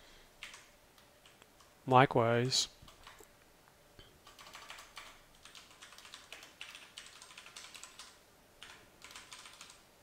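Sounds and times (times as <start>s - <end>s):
keyboard typing: 0.4s - 1.7s, 2.4s - 3.3s, 4.2s - 9.8s.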